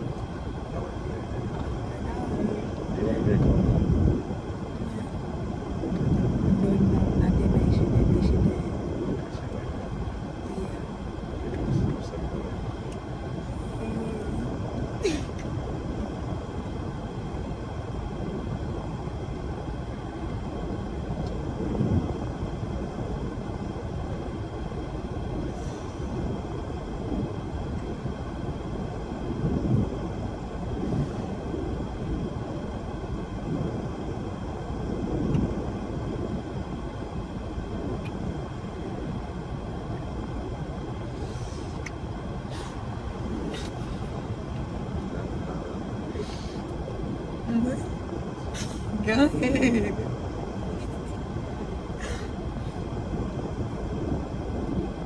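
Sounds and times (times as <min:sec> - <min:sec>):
low rumbling noise: 0:00.0 - 0:55.0.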